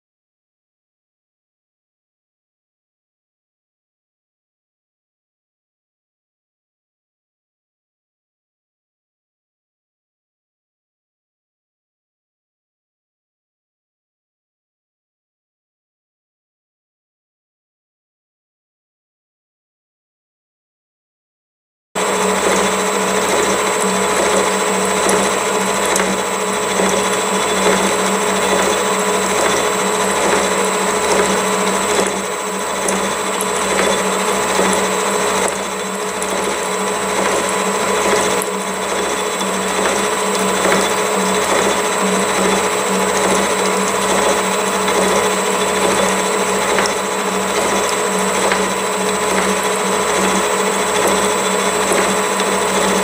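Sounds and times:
milling machine humming: 0:22.0 - 0:53.0.

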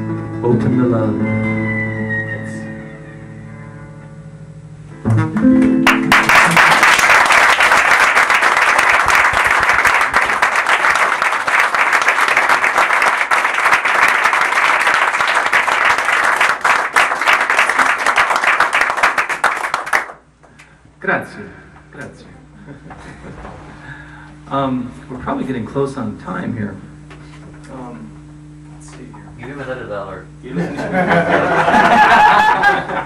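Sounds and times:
guitar and cello piece: 0:00.0 - 0:06.8
audience applause: 0:05.8 - 0:20.2.

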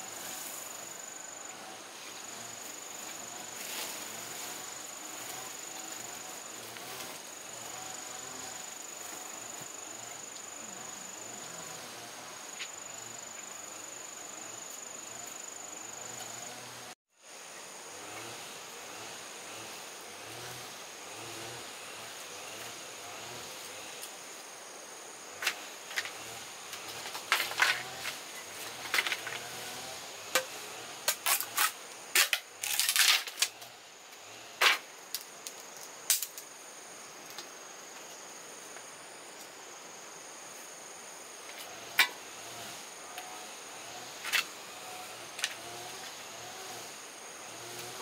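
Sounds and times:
thin high insect-like whine: 0:00.0 - 0:48.0
sharp irregular snaps and knocks: 0:34.6 - 0:36.5.

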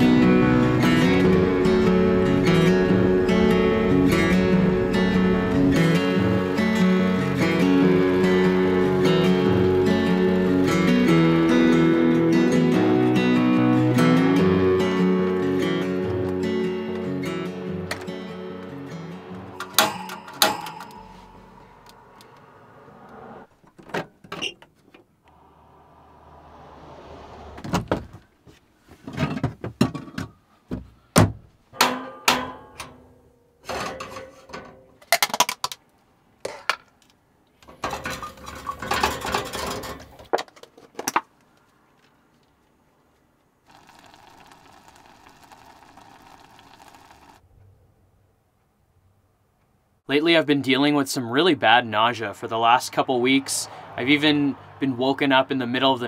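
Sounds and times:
dishes clinking and rattling: 0:37.7 - 0:40.3.

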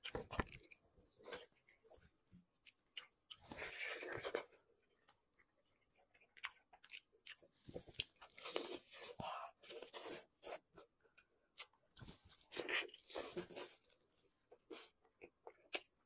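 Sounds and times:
chewing smacks and clicks: 0:05.8 - 0:08.7.

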